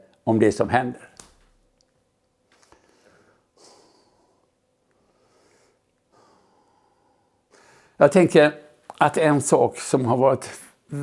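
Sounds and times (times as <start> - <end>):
man breathing softly: 2.6 - 8.0.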